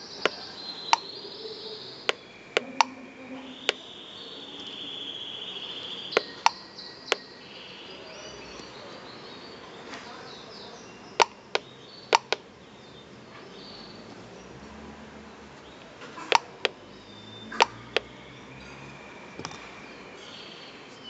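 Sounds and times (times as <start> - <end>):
push button clicks: 11.2 - 12.4, 16.3 - 16.8.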